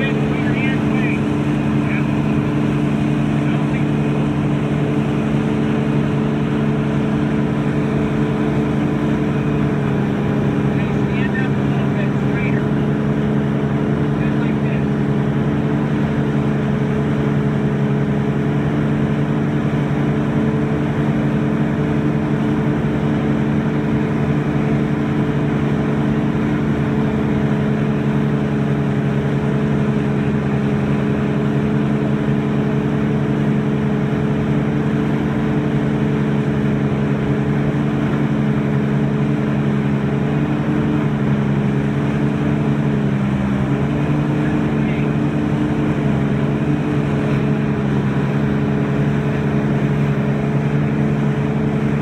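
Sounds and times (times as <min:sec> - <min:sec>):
boat engine droning: 0:00.0 - 0:52.0
water rushing in boat wake: 0:00.0 - 0:52.0.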